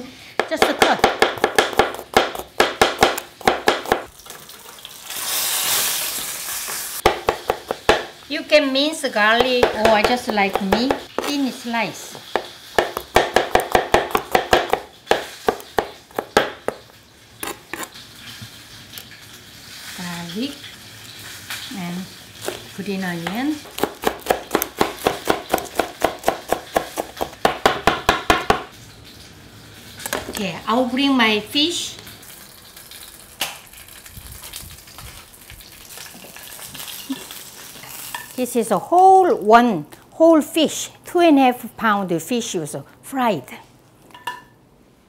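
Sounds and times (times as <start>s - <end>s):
fish frying in oil: 2.0s - 38.4s
knife tapping on cutting board: 7.0s - 8.1s, 9.4s - 11.3s, 12.3s - 16.8s, 23.2s - 28.7s.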